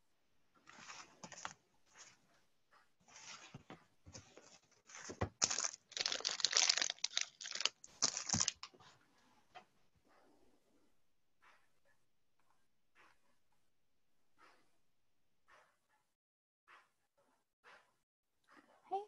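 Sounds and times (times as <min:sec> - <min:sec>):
crinkling and rustling: 0:00.5 - 0:02.4, 0:03.0 - 0:09.7.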